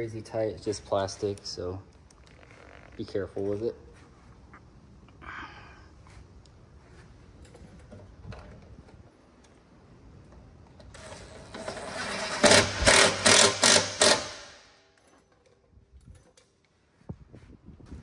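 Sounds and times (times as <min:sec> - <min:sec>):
power driver driving a screw: 0:11.0 - 0:14.6.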